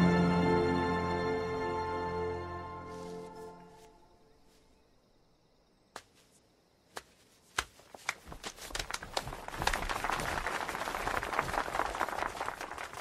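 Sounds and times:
music: 0.0s - 3.9s.

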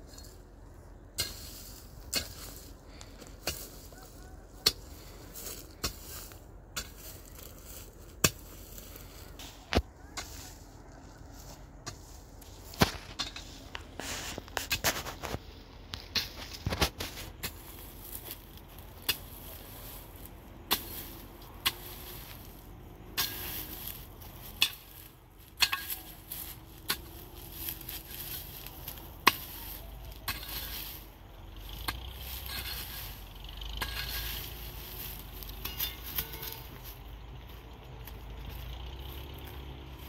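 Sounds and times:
soil scraping and crackling: 0.0s - 40.0s
pickaxe striking hard ground: 24.5s - 31.0s, 33.8s - 36.8s.

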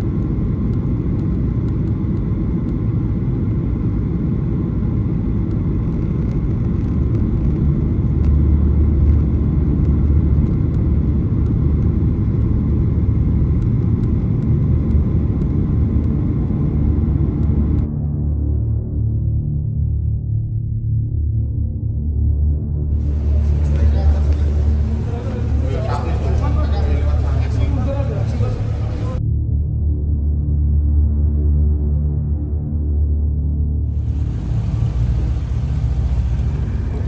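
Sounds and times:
airliner cabin engine rumble: 0.0s - 17.9s, 22.9s - 29.2s, 33.8s - 37.0s.

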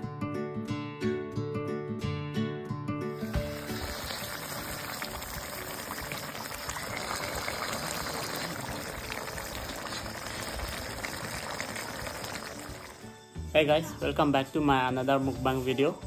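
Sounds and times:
pot bubbling: 3.2s - 13.1s.

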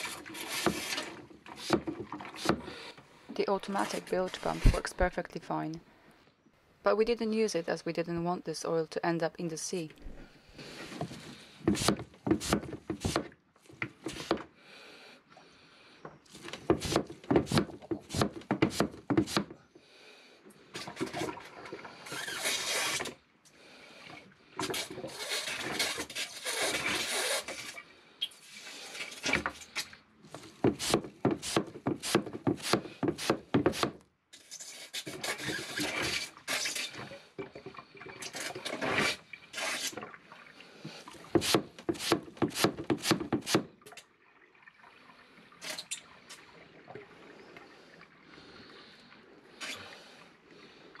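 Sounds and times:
hand pump strokes: 0.0s - 2.8s, 24.6s - 27.8s
liquid slurping through hose: 0.0s - 3.0s, 24.6s - 29.9s.

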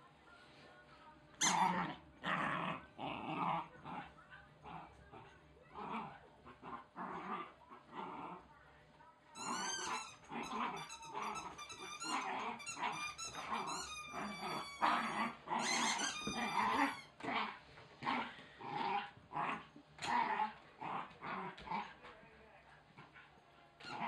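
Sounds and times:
puppy growling: 1.4s - 8.5s, 9.4s - 22.1s, 23.0s - 24.0s
high squeaks: 9.4s - 17.1s.

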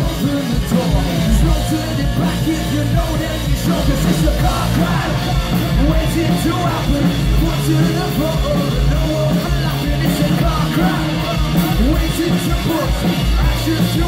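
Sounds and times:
live rock band playing: 0.0s - 14.0s
person singing: 0.0s - 14.0s.

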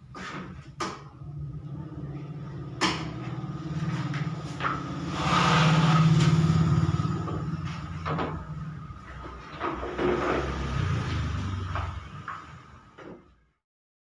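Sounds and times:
vehicle engine running: 0.1s - 13.4s.

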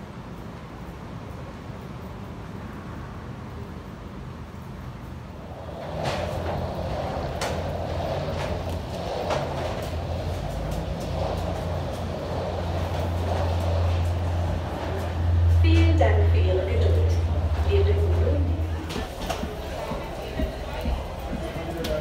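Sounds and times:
suitcase wheels rumbling: 5.4s - 22.0s.

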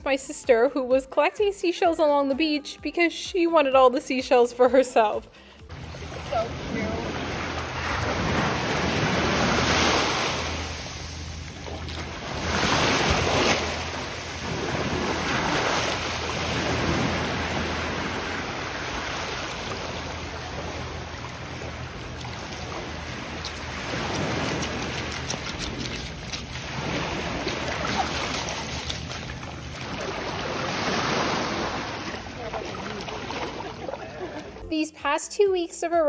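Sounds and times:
waves washing over sand: 5.7s - 34.5s.

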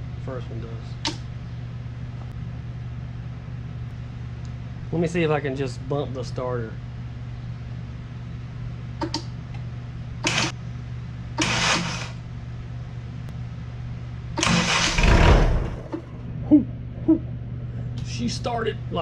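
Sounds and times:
steady low hum: 0.0s - 19.0s
engine starter cranking: 10.2s - 10.5s, 11.4s - 12.1s, 14.4s - 15.9s
engine firing: 14.4s - 16.0s.

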